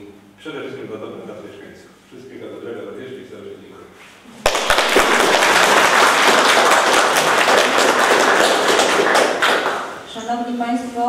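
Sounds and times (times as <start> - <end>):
crowd applause: 4.4 - 10.0.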